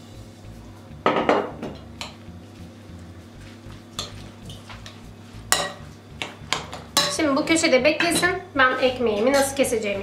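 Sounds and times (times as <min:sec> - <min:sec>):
spoon clattering: 0:06.5 - 0:07.2.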